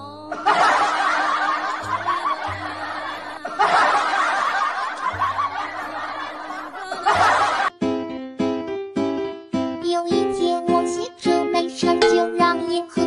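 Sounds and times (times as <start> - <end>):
background music: 0.0 - 13.0
snickering and chuckling voices: 0.3 - 7.7.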